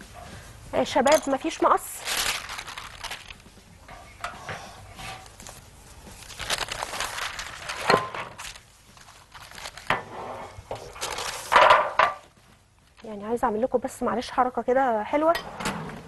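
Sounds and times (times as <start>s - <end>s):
paper rustling: 1.9s - 3.6s, 5.0s - 10.0s, 10.8s - 11.7s.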